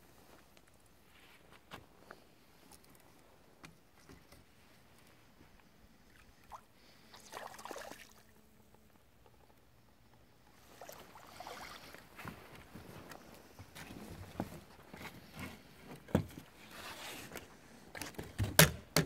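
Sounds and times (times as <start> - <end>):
water splashing: 6.1 - 8.3, 10.6 - 12.1.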